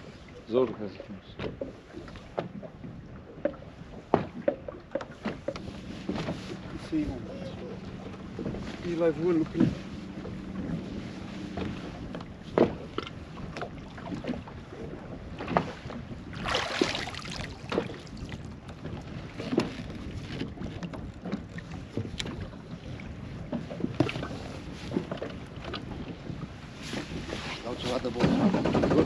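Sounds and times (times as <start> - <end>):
knocks on boat: 1.3 - 22.8, 23.4 - 29.0
water splashing: 4.2 - 23.0
wind on microphone: 5.4 - 29.0.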